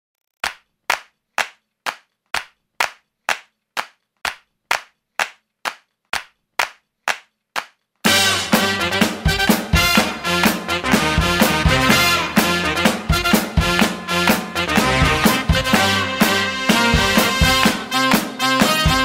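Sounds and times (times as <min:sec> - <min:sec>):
hand claps on steady beat: 0:00.4 - 0:07.8
funk band playing: 0:08.0 - 0:19.0.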